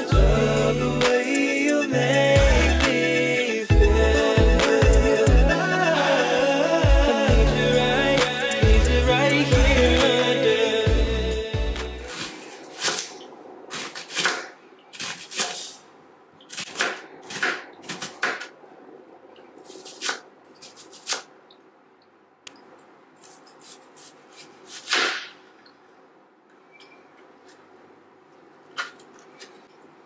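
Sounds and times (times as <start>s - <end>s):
knife slicing onion on board: 13.7s - 15.8s, 16.5s - 18.5s, 19.7s - 21.3s, 23.2s - 25.4s.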